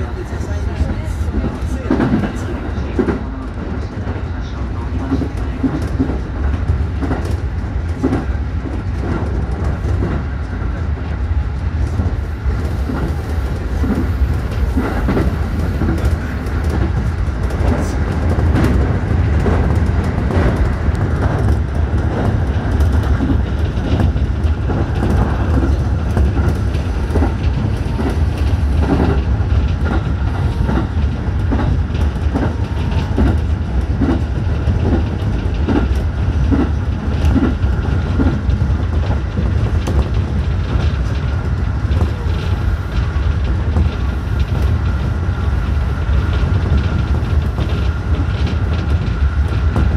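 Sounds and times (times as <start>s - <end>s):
train low rumble: 0.0s - 49.9s
wheels clicking over rail joints: 11.8s - 49.9s.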